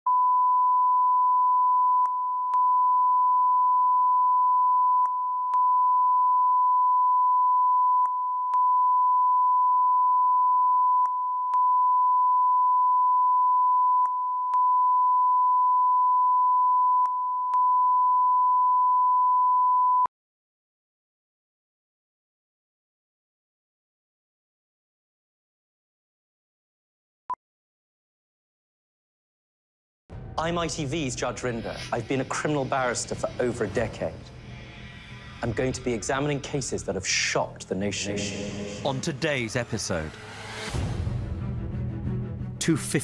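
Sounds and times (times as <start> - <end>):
steady test tone beep: 0.1 - 20.1.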